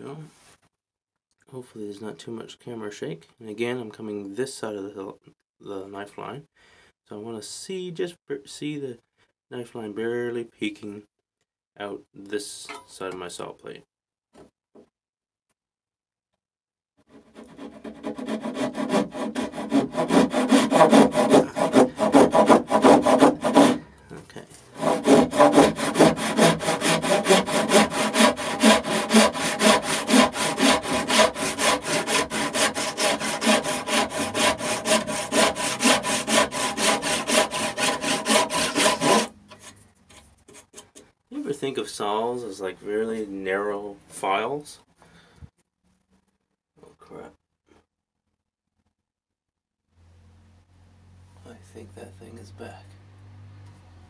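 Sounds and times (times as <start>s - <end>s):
hand saw rasping through wood: 17.1s - 23.9s, 24.7s - 39.7s.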